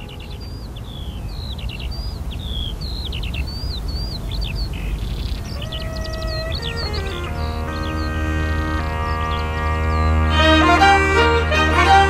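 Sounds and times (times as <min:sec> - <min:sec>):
small birds chirping: 0:00.0 - 0:12.0
music: 0:05.6 - 0:12.0.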